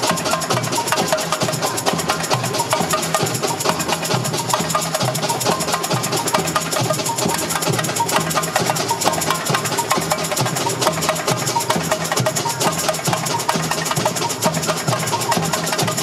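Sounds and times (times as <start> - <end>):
samba music: 0.0 - 16.0.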